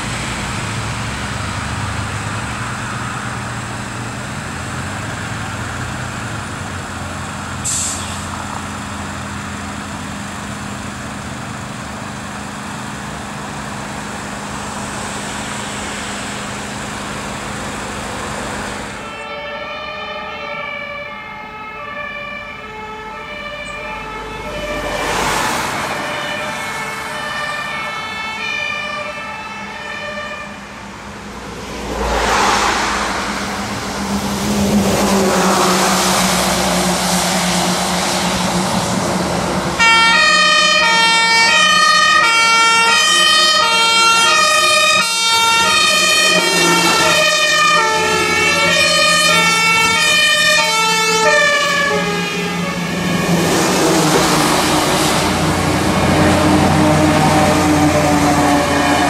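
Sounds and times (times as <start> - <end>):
passing road traffic: 0.0 - 59.0
fire engine two-tone siren: 11.6 - 31.1, 31.8 - 38.8, 39.7 - 59.0.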